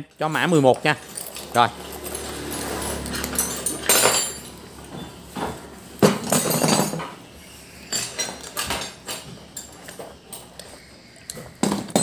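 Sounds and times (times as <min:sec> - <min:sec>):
drill bits clattering on wooden floor: 0:02.9 - 0:04.6, 0:06.0 - 0:07.1.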